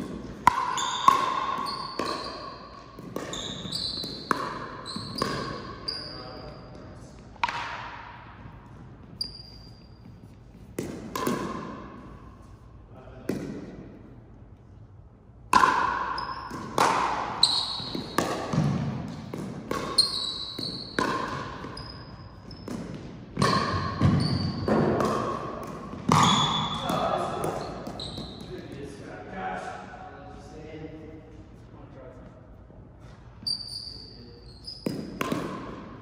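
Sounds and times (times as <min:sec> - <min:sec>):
ball bouncing with echoing impacts: 0:00.0 - 0:12.5, 0:13.1 - 0:14.3, 0:15.3 - 0:29.4, 0:33.3 - 0:36.0
shoes squeaking on floor: 0:00.6 - 0:07.2, 0:08.5 - 0:10.8, 0:17.3 - 0:22.8, 0:23.4 - 0:24.9, 0:25.9 - 0:28.7, 0:33.0 - 0:35.2.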